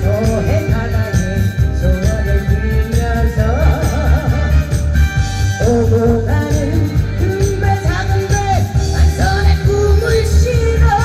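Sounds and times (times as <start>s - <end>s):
backing track with heavy bass beat: 0.0s - 11.0s
woman singing through pa: 5.6s - 11.0s.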